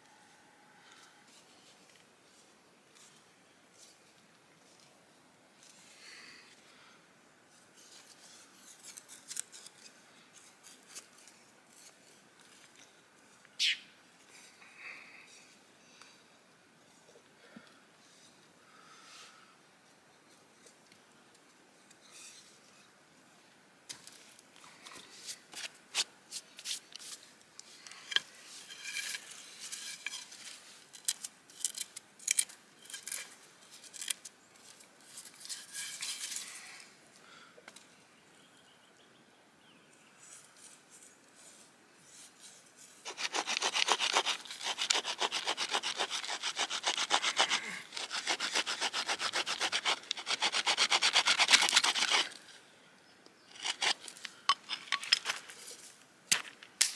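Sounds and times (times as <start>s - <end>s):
knife scraping wood: 43.0s - 52.4s, 53.5s - 55.4s.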